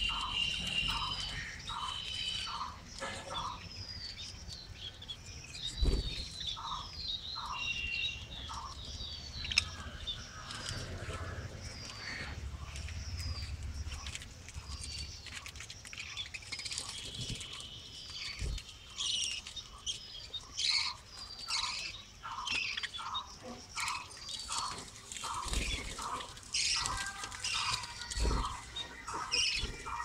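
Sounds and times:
evenly spaced chirps: 0.0 - 4.6, 5.5 - 30.0
budgerigars chirping and squawking: 0.0 - 30.0.

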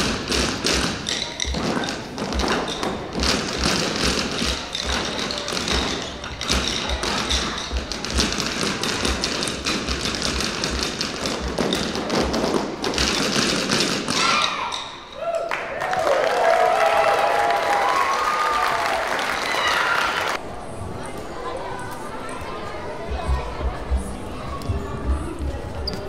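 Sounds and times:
rhythm sticks tapping: 0.0 - 14.9.

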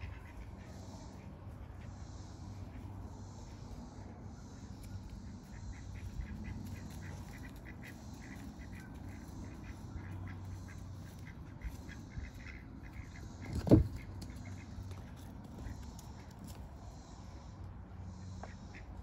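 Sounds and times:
birds calling: 0.0 - 17.4
low steady hum: 0.0 - 19.0.

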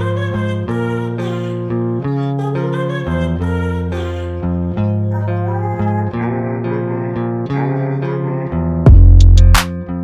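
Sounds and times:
plucked guitar-like notes: 0.0 - 10.0
heavy bass and drum beat: 8.9 - 9.8.

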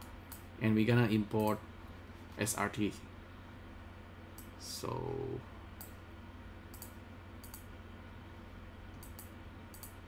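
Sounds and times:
low steady hum: 0.0 - 10.0
computer mouse clicks: 5.8 - 6.0, 6.7 - 7.7, 8.9 - 10.0.

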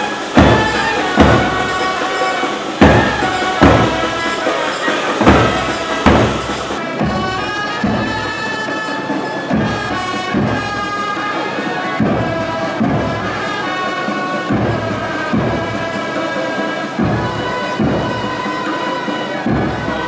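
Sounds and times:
trumpets playing slow melody: 0.0 - 20.0
bass drum beats: 2.8 - 4.2, 5.2 - 8.3.

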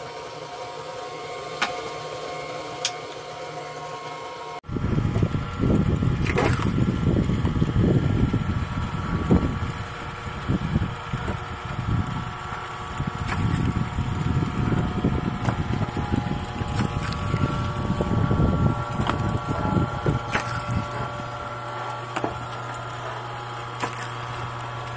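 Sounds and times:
log splitter machine drone: 0.0 - 24.9
log splitting cracks: 6.0 - 7.5, 12.0 - 14.6, 15.3 - 24.9
wood crunching: 6.0 - 7.6, 12.4 - 24.9.

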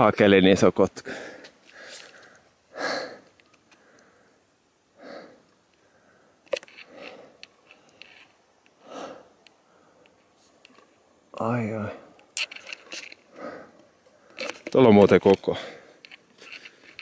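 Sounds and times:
person breathing hard: 1.1 - 8.2, 8.8 - 10.1, 13.2 - 14.6.

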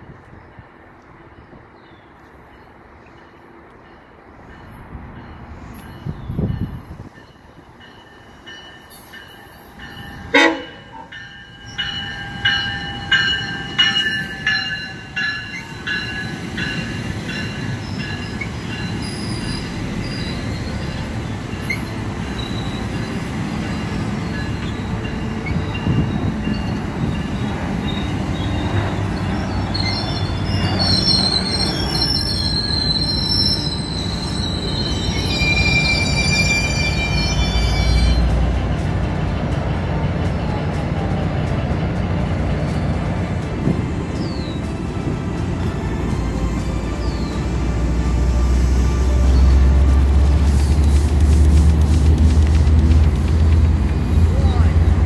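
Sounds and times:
train coaches rumbling past: 0.0 - 55.0
train warning signal ringing: 6.0 - 19.1
high wheel squeal: 17.6 - 38.3.

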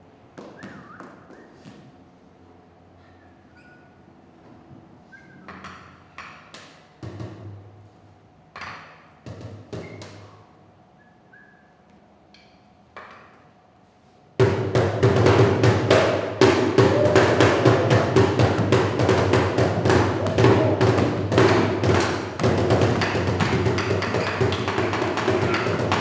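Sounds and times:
fast percussive beat: 14.4 - 26.0.

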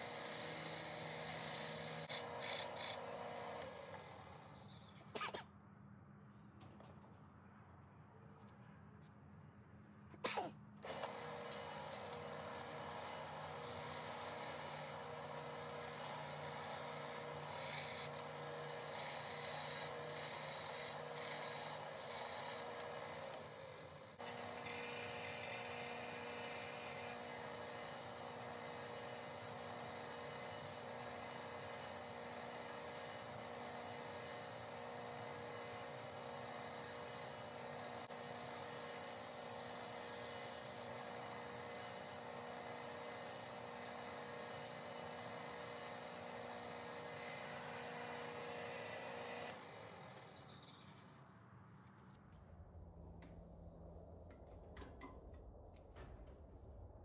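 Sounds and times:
wood lathe motor humming: 0.0 - 4.4, 10.8 - 50.7
turning tool scraping wood: 10.9 - 23.4, 24.2 - 51.2.

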